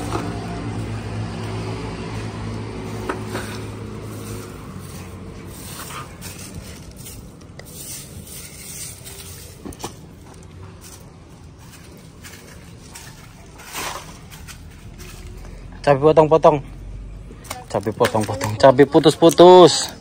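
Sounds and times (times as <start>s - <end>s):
rustling and scraping: 0.0s - 15.8s.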